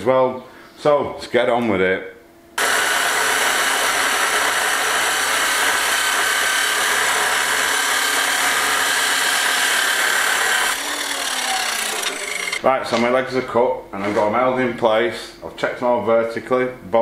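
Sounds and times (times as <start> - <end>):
chop saw cutting steel: 2.6 - 12.6.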